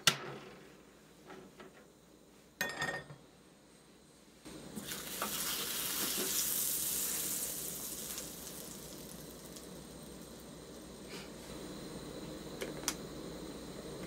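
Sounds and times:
butter sizzling in skillet: 4.8s - 11.2s.

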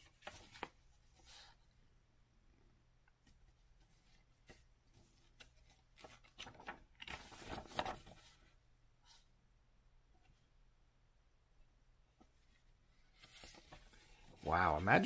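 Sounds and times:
paper handling: 3.8s - 8.4s, 13.0s - 14.8s
paper page turning: 4.4s - 8.4s, 13.0s - 15.0s.

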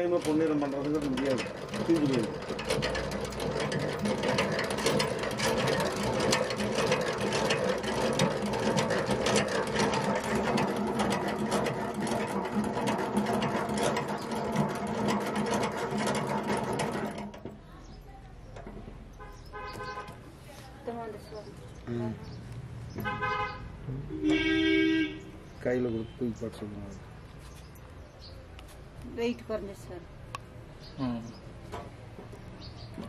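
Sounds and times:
crank gearing rattling: 0.0s - 20.2s
honey extractor humming: 0.0s - 20.2s.

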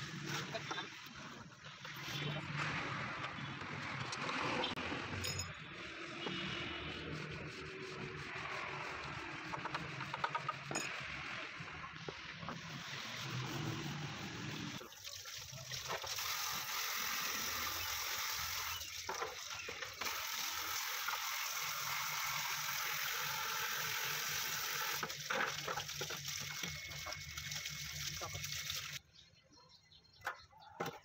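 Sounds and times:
water pouring from a hose: 12.6s - 29.0s.

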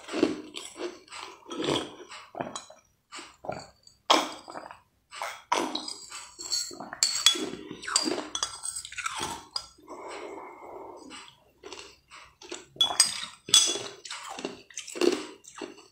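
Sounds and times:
slurping and chewing: 0.0s - 15.9s
metal spoon clinking on glass bowl: 5.8s - 9.8s, 12.8s - 13.9s.

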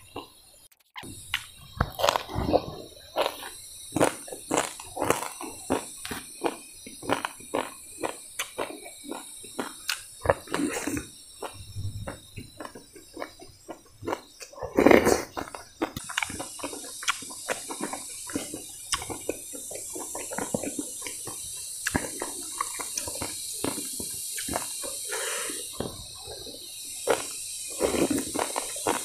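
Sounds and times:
steady high hiss: 0.0s - 29.0s
wet chewing and lip smacks: 1.3s - 14.6s, 15.3s - 25.0s
slurp of soup: 10.4s - 11.1s.

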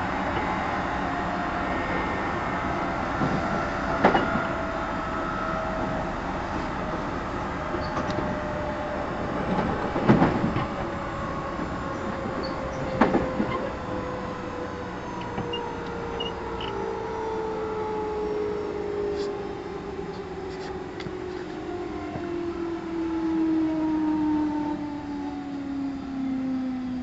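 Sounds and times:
wheels rumbling on rail: 0.0s - 27.0s
train motor whine: 7.5s - 18.3s.

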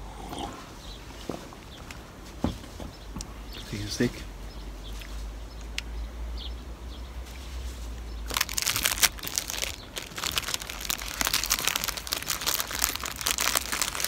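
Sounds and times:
plastic wrapper crinkling: 8.3s - 14.0s.

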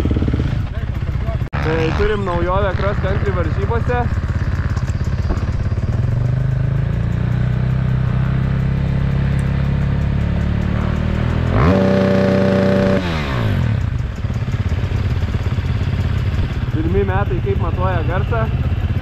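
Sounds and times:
motorcycle engine revving: 0.0s - 19.0s.

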